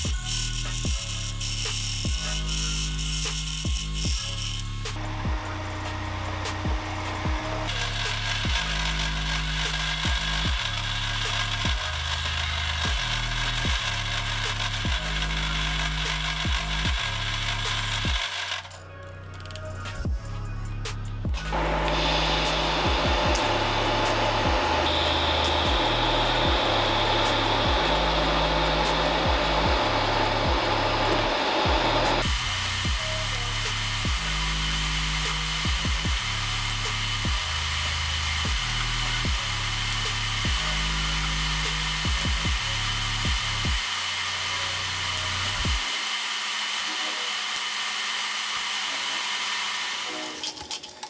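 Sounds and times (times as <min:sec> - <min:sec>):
welding arc hissing: 0:00.0 - 0:18.8, 0:21.4 - 0:51.0
background music with bass line: 0:00.0 - 0:45.9
low hum: 0:20.1 - 0:37.7.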